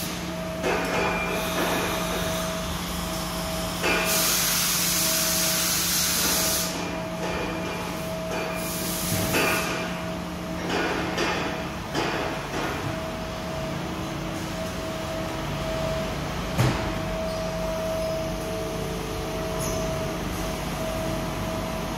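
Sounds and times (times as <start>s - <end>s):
compressed air hiss: 3.9s - 6.8s.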